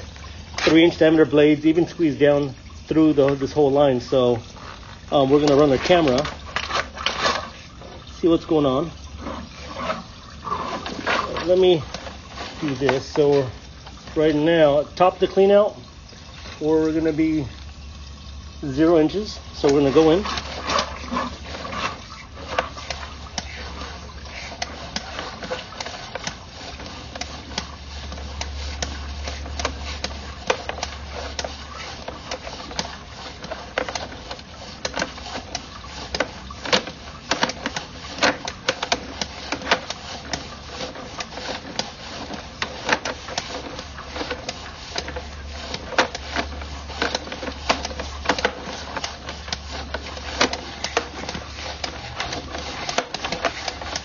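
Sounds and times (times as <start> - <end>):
cable clicking and rattling: 19.6 - 54.0.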